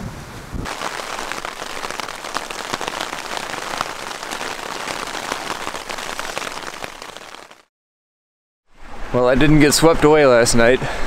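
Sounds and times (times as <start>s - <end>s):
hard rain on tent fabric: 0.6s - 7.7s.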